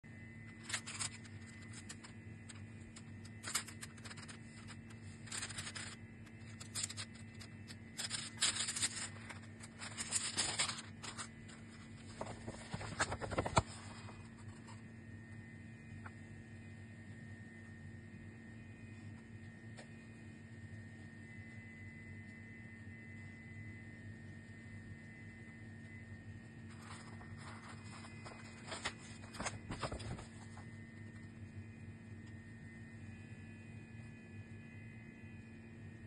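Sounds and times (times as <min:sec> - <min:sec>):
paper crinkling and rustling: 0:00.5 - 0:14.8, 0:26.6 - 0:31.3
paper envelope tearing: 0:00.6 - 0:14.0, 0:26.7 - 0:30.4.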